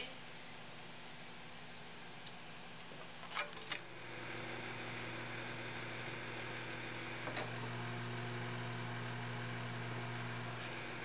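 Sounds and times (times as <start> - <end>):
microwave oven humming: 3.7 - 11.0.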